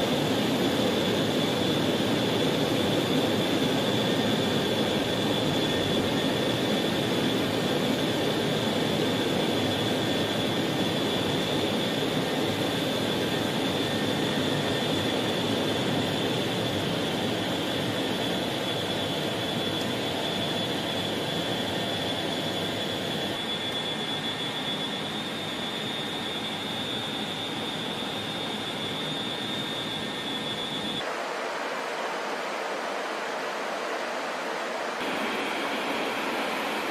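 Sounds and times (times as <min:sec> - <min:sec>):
jet engines roaring with whine: 0:00.0 - 0:36.9.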